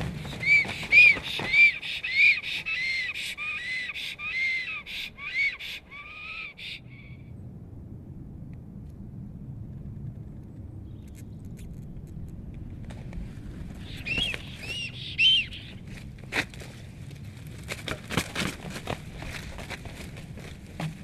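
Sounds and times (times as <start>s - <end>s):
wings flapping on stick nest: 0.0s - 3.2s, 12.8s - 16.8s, 17.5s - 21.0s
bird calls: 0.0s - 7.2s, 13.8s - 16.0s
low background rumble: 0.0s - 21.0s.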